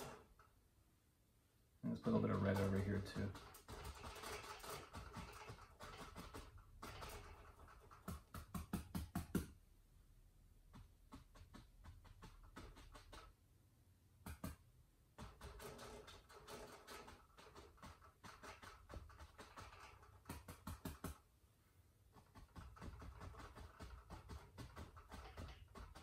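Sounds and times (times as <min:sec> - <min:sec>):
paintbrush tapping on canvas: 0:08.0 - 0:09.6, 0:10.7 - 0:13.3.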